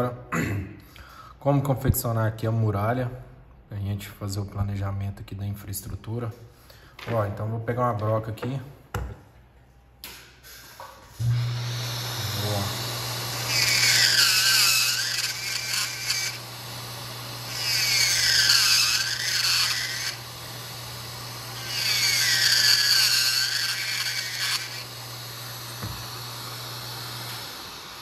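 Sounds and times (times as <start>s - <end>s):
micromotor hum: 11.2s - 28.0s.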